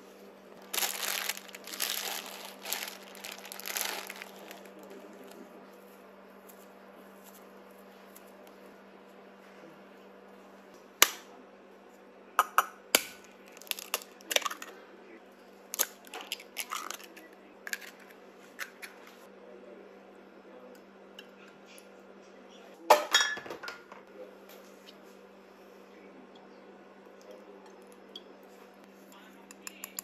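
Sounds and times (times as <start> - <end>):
eggshells cracking: 0.6 - 4.7, 13.5 - 14.5.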